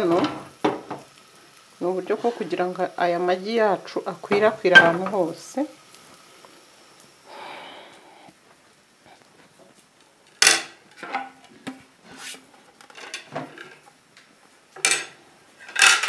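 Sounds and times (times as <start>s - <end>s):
cutlery and dishes clattering: 12.9s - 13.8s, 14.8s - 16.0s.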